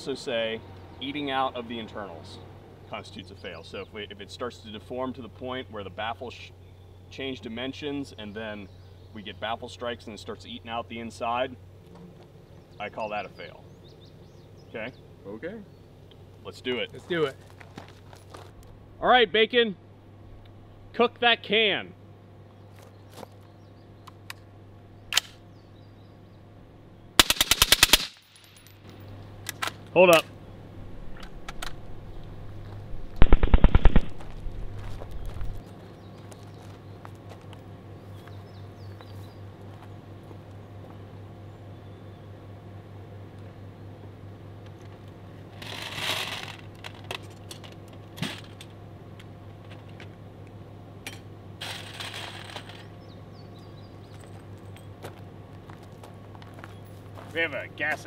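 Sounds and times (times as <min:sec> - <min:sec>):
steady low hum: 0:00.0 - 0:58.0
sharp metallic click: 0:25.1 - 0:25.4
suppressed rifle burst: 0:27.2 - 0:28.4, 0:33.2 - 0:34.2
metallic clicks and clinks: 0:28.1 - 0:29.6.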